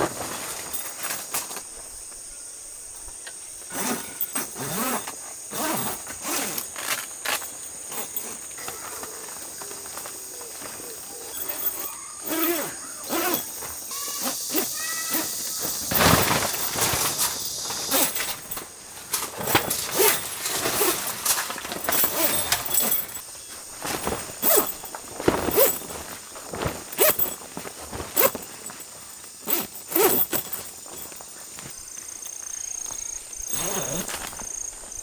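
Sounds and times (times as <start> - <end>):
heavy fabric rustling and flapping: 0.0 - 2.2, 14.6 - 35.0.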